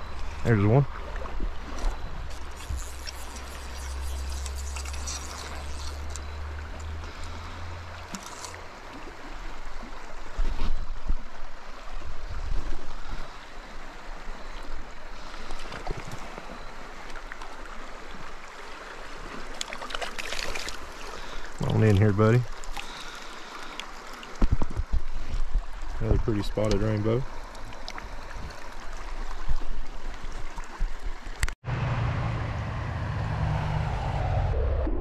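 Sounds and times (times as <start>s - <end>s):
stream gurgling over rocks: 0.0s - 31.5s
low rumble: 31.6s - 35.0s.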